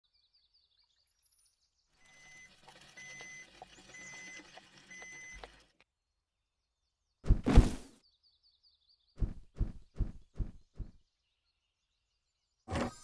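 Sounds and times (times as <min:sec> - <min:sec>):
squealing cart wheel: 0:02.0 - 0:05.7.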